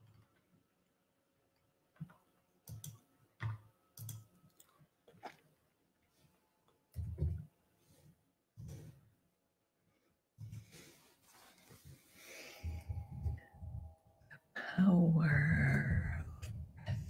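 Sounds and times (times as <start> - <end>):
faint clicks and soft knocks: 0.0 - 9.0.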